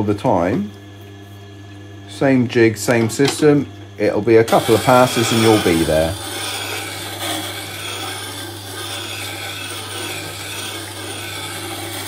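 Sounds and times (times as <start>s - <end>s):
grinder motor hum: 0.0s - 12.0s
steel grinding against wheel: 4.4s - 12.0s.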